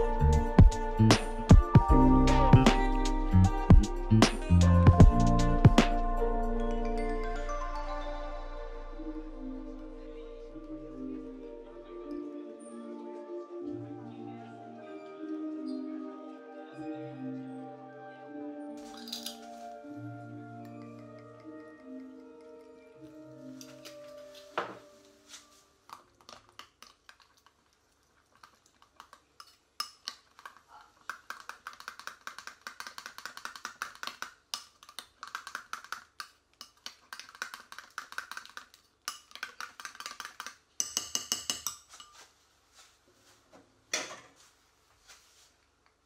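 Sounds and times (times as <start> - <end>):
metal spoon clinking glass bowl: 18.8 - 19.5, 36.6 - 42.3.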